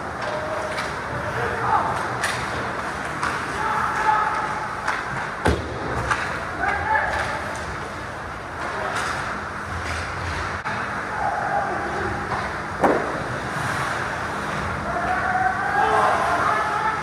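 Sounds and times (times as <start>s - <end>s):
players shouting: 3.3s - 4.9s, 14.7s - 17.0s
skates scraping on ice: 12.9s - 15.1s.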